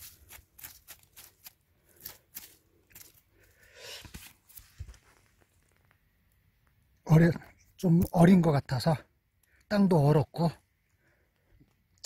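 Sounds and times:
fingers scratching in dry soil: 0:00.0 - 0:05.8.

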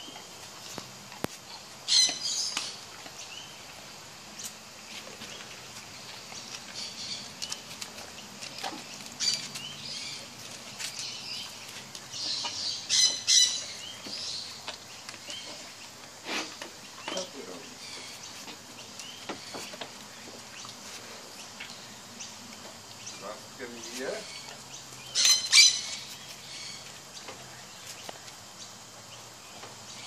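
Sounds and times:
parrot chirping: 0:01.9 - 0:02.7, 0:12.3 - 0:13.8, 0:25.1 - 0:26.8
parrot squawking: 0:25.2 - 0:26.0.

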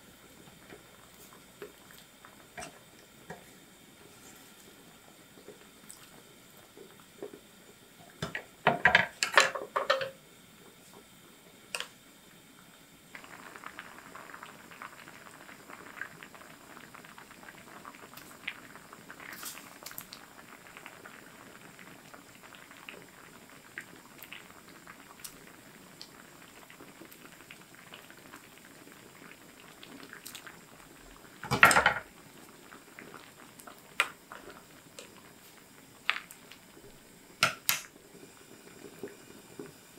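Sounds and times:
food bubbling on the stove: 0:00.0 - 0:39.9
cookware clattering: 0:08.7 - 0:10.2.

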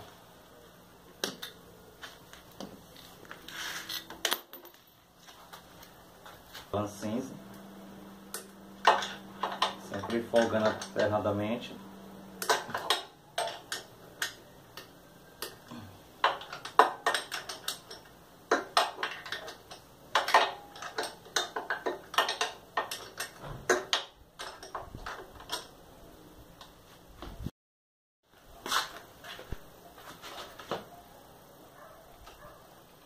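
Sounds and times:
wrench clicking on bolts: 0:16.2 - 0:25.7.

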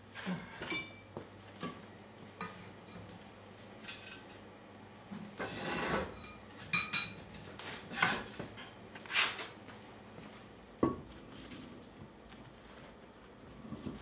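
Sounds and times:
heavy metal block scraping: 0:05.4 - 0:06.2.

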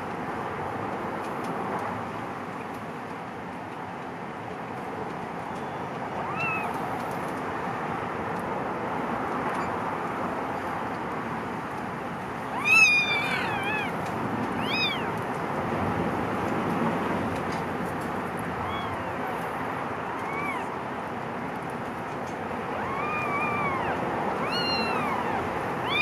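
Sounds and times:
kittens mewing: 0:06.2 - 0:06.8, 0:12.4 - 0:15.3, 0:18.5 - 0:20.8, 0:22.6 - 0:26.0.

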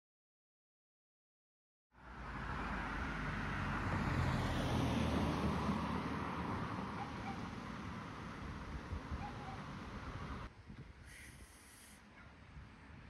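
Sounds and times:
car passing: 0:02.0 - 0:10.5.

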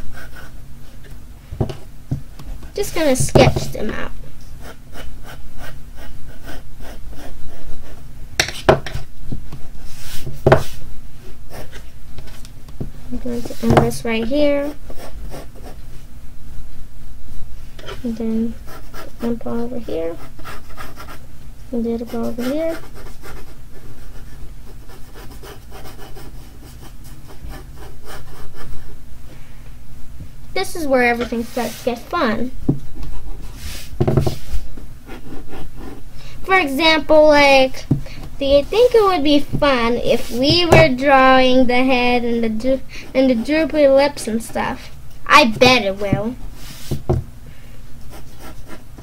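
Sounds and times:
pencil sketching on paper: 0:00.0 - 0:00.6, 0:04.6 - 0:08.0, 0:14.6 - 0:15.8, 0:18.6 - 0:21.2, 0:22.0 - 0:28.9, 0:31.3 - 0:32.0, 0:33.1 - 0:36.0, 0:48.1 - 0:48.8.

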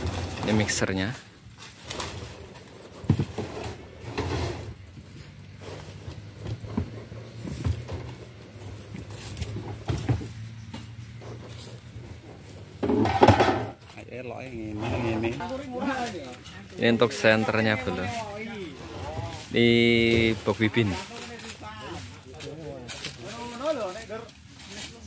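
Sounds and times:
wooden cases knocking and thumping: 0:02.8 - 0:04.5, 0:05.9 - 0:11.5, 0:12.1 - 0:13.8.

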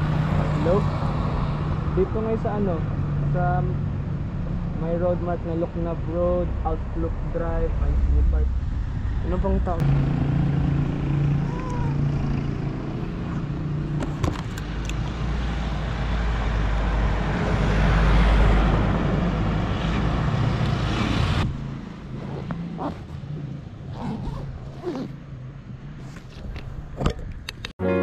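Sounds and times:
low engine hum: 0:00.0 - 0:27.5
vehicle passing by: 0:05.9 - 0:14.0, 0:15.2 - 0:26.0.

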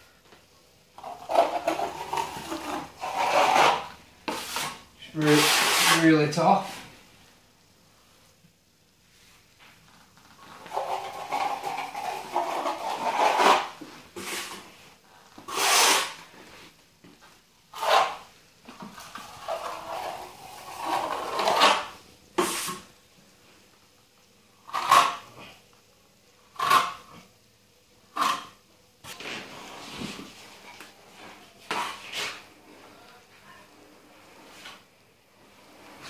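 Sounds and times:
trowel scraping wet plaster: 0:01.0 - 0:06.0, 0:10.5 - 0:14.6, 0:15.5 - 0:16.2, 0:19.4 - 0:22.8.

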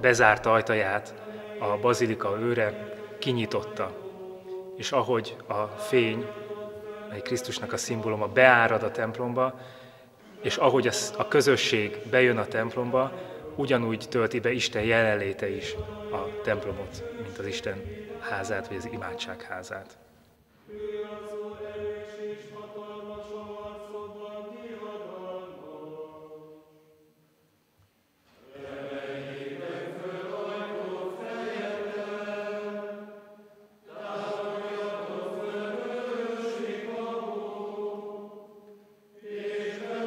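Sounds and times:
men chanting in unison: 0:00.6 - 0:09.2, 0:10.2 - 0:19.7, 0:20.7 - 0:26.4, 0:39.2 - 0:40.0.

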